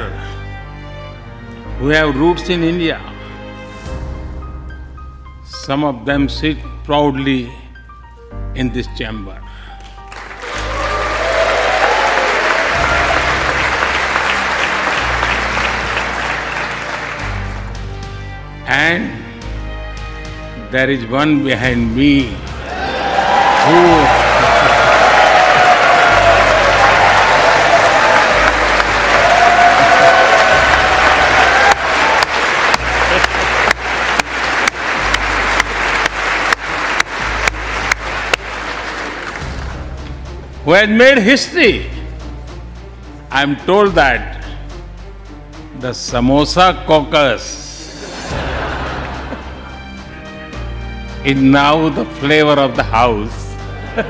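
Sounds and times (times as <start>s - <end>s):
large audience applauding: 9.8s - 17.8s, 22.6s - 39.9s, 48.0s - 50.3s
background music with beat: 9.8s - 18.7s, 21.8s - 47.2s, 47.8s - 54.0s.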